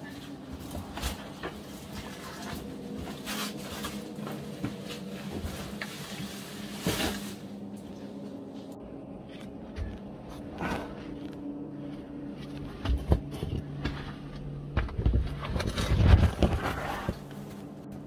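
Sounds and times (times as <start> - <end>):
low hum: 0.0 - 18.0
gear scraping against rock: 15.2 - 17.5.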